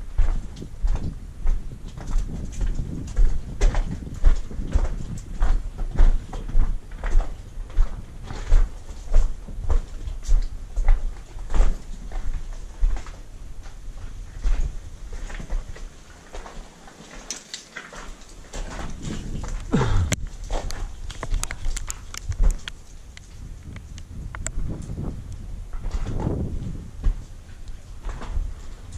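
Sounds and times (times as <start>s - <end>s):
footsteps on gravel: 0.2s - 23.4s
small clicks: 19.6s - 24.6s.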